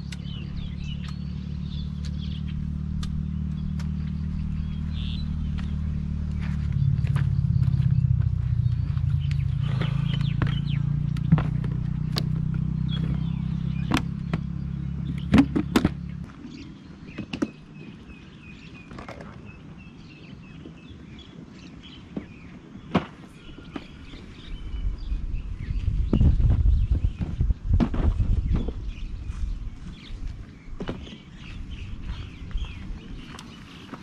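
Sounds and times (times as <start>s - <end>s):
low rumble: 0.0s - 16.3s
engine humming: 0.0s - 21.5s, 22.2s - 34.0s.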